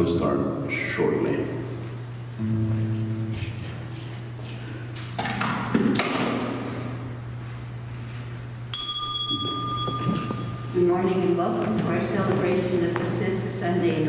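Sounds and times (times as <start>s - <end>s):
sound system low hum: 0.0s - 14.0s
high ringing tone: 8.7s - 11.4s.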